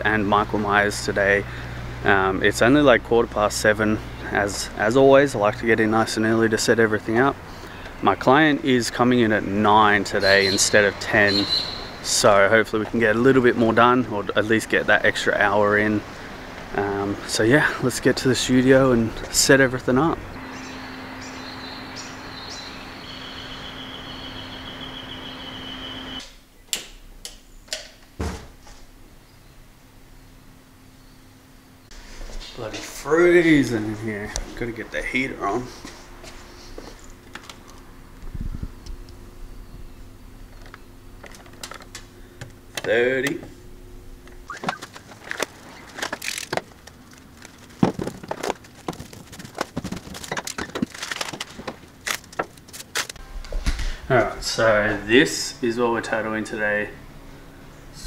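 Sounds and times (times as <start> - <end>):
steady low hum: 0.0 - 58.0
sharp clicks and knocks: 44.2 - 53.8.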